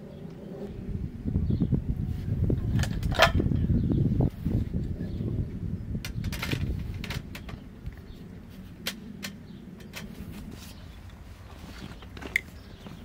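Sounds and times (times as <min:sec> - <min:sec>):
camping gear clicks and knocks: 0:02.7 - 0:03.5, 0:08.8 - 0:13.0.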